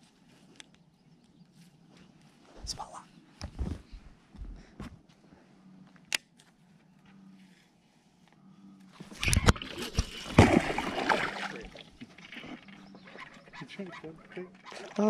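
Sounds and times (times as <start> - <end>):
fish splashing at water surface: 9.1 - 12.7.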